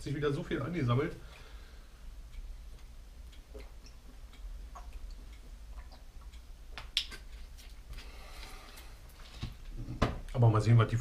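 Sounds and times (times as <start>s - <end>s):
steady low hum: 0.0s - 11.0s
light clicks and ticks: 2.3s - 10.4s.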